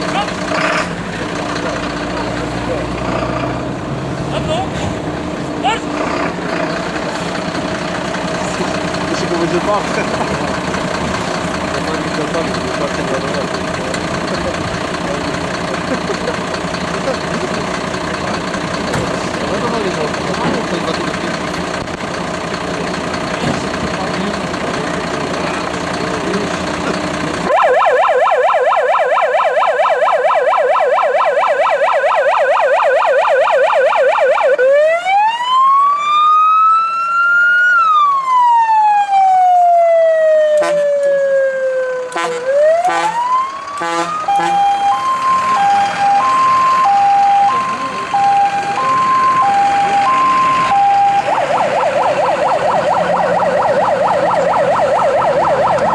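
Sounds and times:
fire engine electronic siren: 0:06.7 - 0:55.9.

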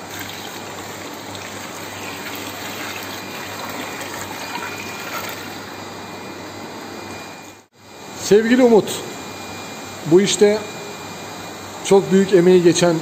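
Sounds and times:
water pouring into tank: 0:00.0 - 0:05.8.

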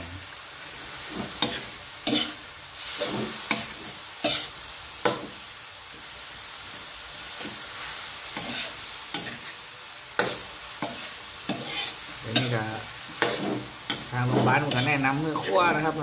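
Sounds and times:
meat sizzling in a wok: 0:00.0 - 0:16.0
metal ladle scraping pan: 0:01.1 - 0:04.5, 0:08.4 - 0:09.5, 0:10.2 - 0:15.9.

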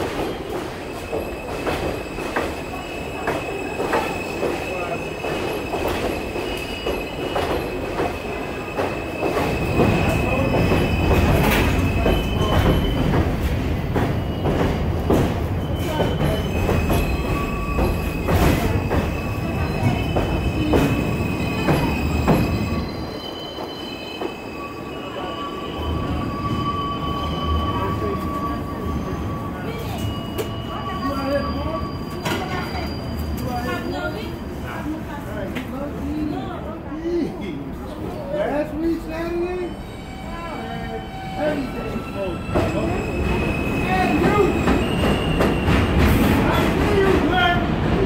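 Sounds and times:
train wheels squealing: 0:00.0 - 0:34.8, 0:38.0 - 0:47.1.

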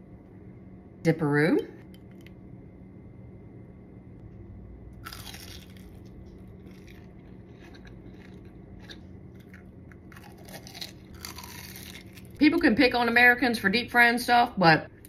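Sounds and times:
crunchy bite and chewing: 0:05.0 - 0:12.4.

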